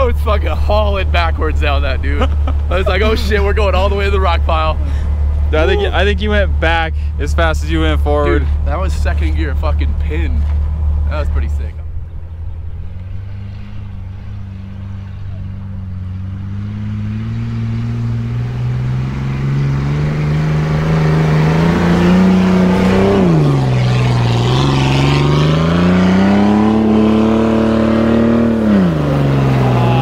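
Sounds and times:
engine revving under load: 0.0s - 30.0s.

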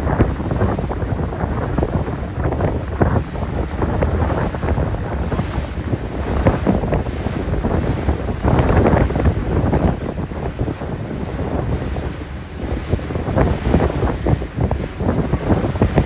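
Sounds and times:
rushing water: 0.0s - 16.0s
wind buffeting microphone: 0.0s - 16.0s.

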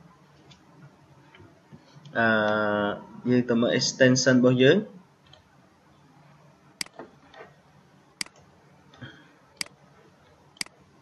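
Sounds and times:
computer mouse clicking: 6.8s - 7.5s.

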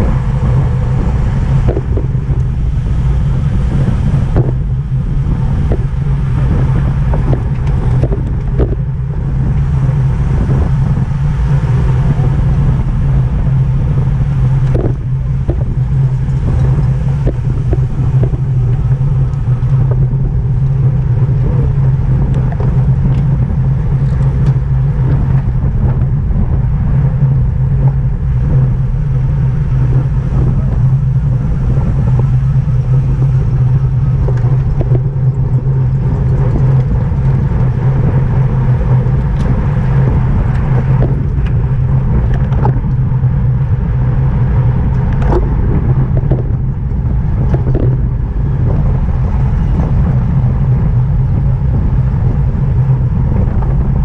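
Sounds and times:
wind rumble on microphone: 0.0s - 54.0s.

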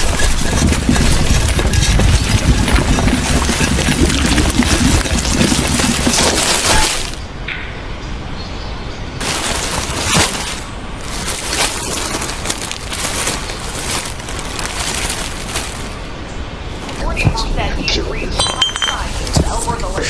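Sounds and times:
dry leaves crackling and rustling: 0.0s - 7.3s, 9.2s - 17.2s.

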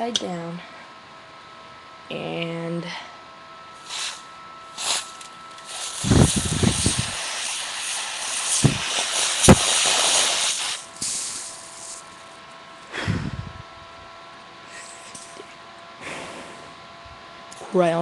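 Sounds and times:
compressed air can hissing: 3.8s - 12.2s.

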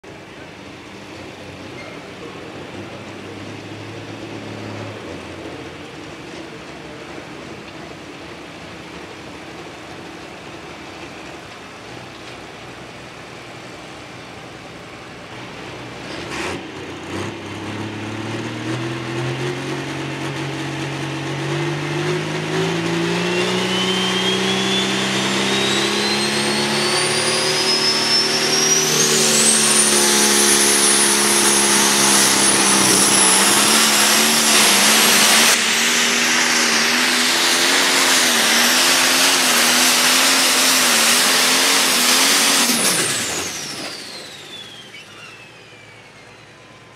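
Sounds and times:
diesel tractor engine: 0.0s - 46.9s
turbocharger whistle: 17.8s - 46.9s.

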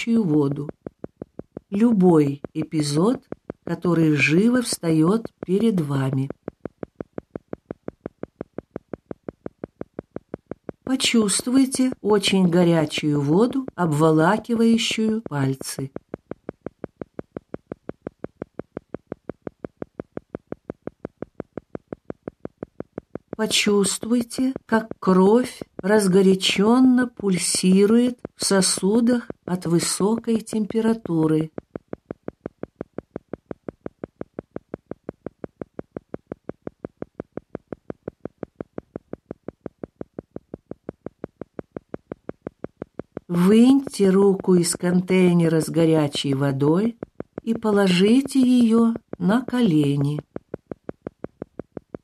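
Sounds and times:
pulsing short beats: 0.3s - 11.2s, 13.2s - 26.7s, 27.4s - 44.5s
rapid electronic tone pulses: 15.9s - 23.7s.

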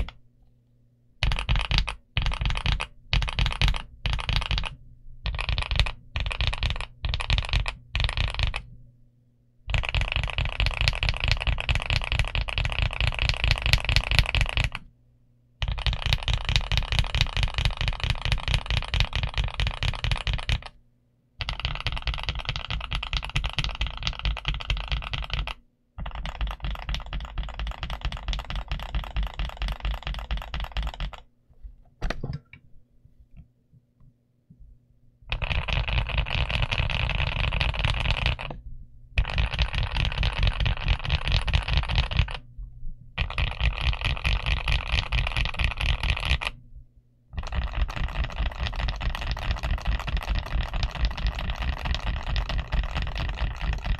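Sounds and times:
fast typing on mechanical keyboard: 1.2s - 8.7s, 9.7s - 14.9s, 15.6s - 20.8s, 21.4s - 31.3s, 35.3s - 38.6s, 39.2s - 42.4s, 43.2s - 46.6s, 47.4s - 53.9s.

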